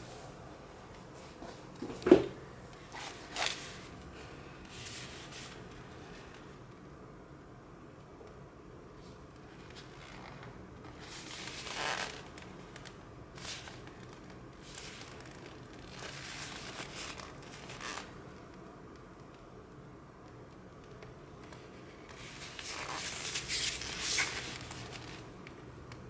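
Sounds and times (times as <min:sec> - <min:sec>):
rustling and scraping on cardboard: 0:22.1 - 0:25.2.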